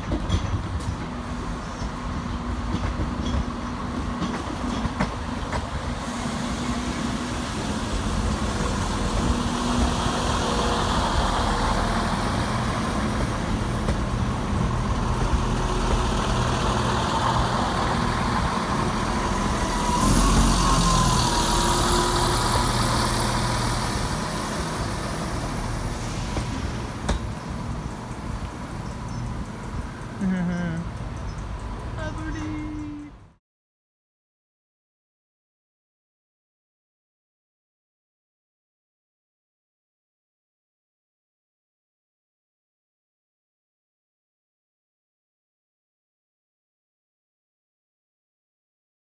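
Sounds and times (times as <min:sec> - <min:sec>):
train wheels rumbling on rails: 0:00.0 - 0:33.2
diesel train engine hum: 0:00.0 - 0:33.4.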